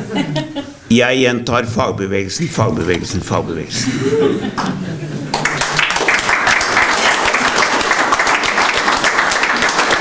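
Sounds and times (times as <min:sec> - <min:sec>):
audience applauding: 0:05.3 - 0:10.0.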